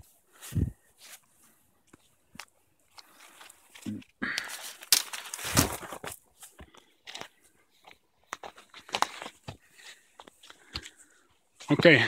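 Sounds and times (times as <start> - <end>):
branches brushing: 3.0 - 6.6.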